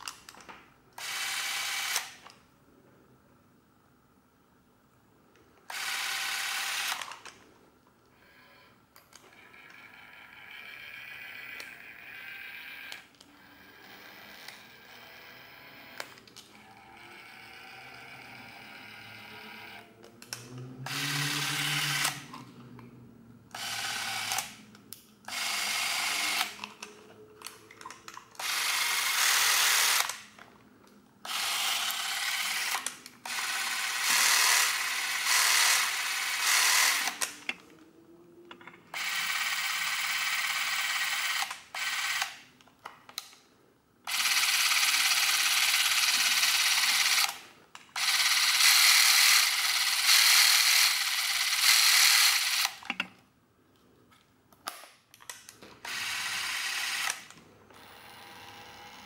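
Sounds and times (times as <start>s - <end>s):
camera motor running: 1.0s - 2.1s, 5.7s - 7.2s, 16.8s - 19.8s, 20.8s - 22.3s, 23.6s - 24.6s, 25.3s - 26.6s, 28.4s - 30.2s, 31.3s - 37.3s, 39.0s - 42.3s, 44.1s - 47.4s, 48.0s - 52.8s, 55.8s - 57.2s.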